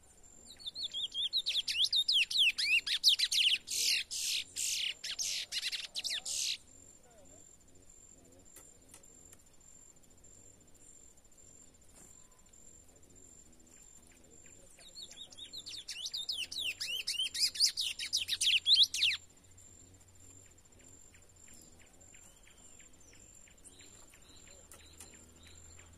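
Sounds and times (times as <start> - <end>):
finch singing whistled notes: 0.5 - 6.6, 14.8 - 19.2, 21.4 - 25.9.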